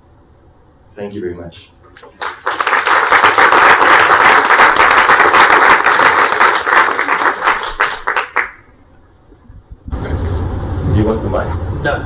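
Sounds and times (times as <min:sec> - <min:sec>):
audience applauding: 0:02.0 - 0:08.7.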